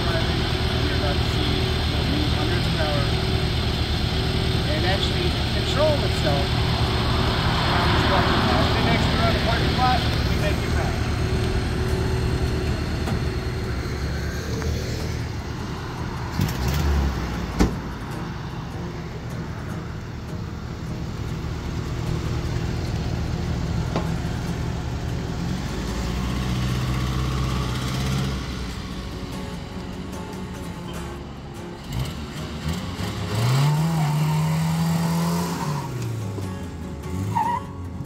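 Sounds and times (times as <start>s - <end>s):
pickup truck engine running: 0.0s - 37.8s
thud: 17.6s - 17.9s.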